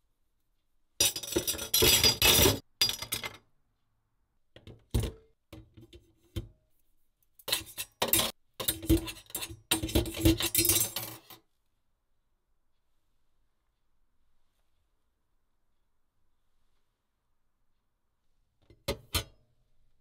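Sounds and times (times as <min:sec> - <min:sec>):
metal parts clattering in sink: 0:01.0 - 0:03.4, 0:07.4 - 0:11.4.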